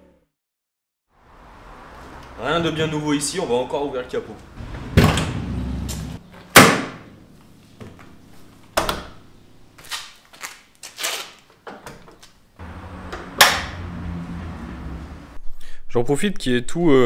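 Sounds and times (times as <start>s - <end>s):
car bonnet slamming: 4.6s - 5.6s, 6.5s - 7.1s.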